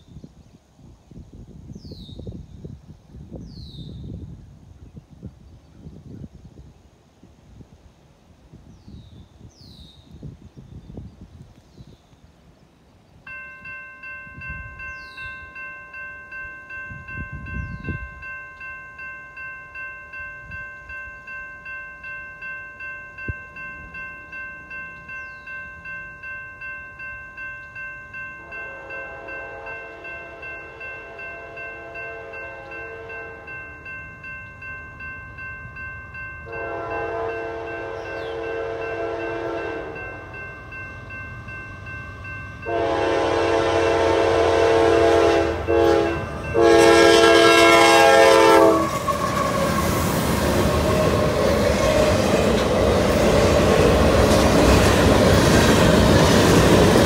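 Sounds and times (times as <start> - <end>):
electronic crossing bell ringing: 13.3 - 48.8
locomotive horn: 28.4 - 33.7, 36.4 - 40.3, 42.6 - 52.6.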